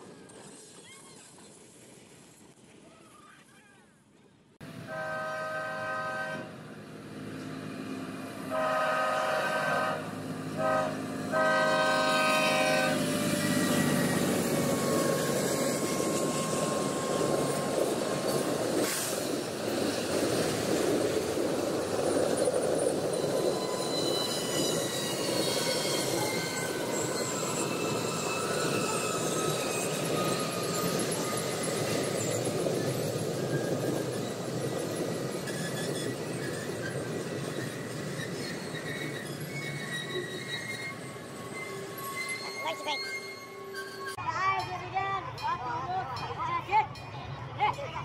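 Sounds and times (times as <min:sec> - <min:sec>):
train wheels on rails: 0:00.0 - 0:02.8, 0:06.4 - 0:44.2
train air horn: 0:04.8 - 0:06.6, 0:08.5 - 0:13.2
thin wheel squeal: 0:12.2 - 0:17.7, 0:23.1 - 0:44.2.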